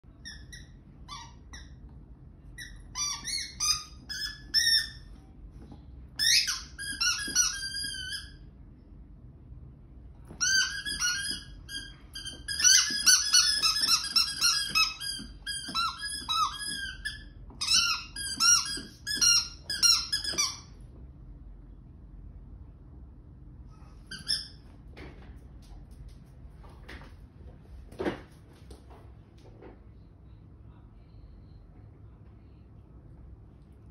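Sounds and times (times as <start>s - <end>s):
squeaky dog toy squeaking: 0.1s - 1.8s, 2.5s - 5.1s, 6.2s - 8.4s, 10.3s - 20.8s, 24.0s - 24.6s.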